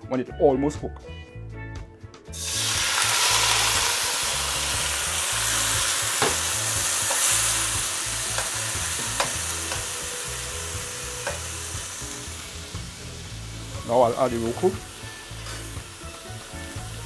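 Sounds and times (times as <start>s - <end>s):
vegetables sizzling in hot oil: 2.4s - 17.0s.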